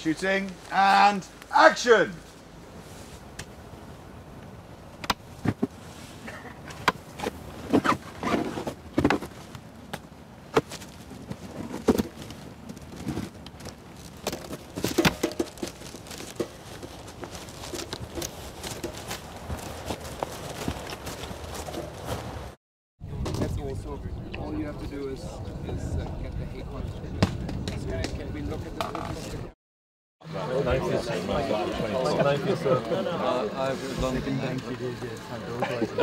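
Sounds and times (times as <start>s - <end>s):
footsteps on dry leaves and twigs: 8.6s - 22.6s.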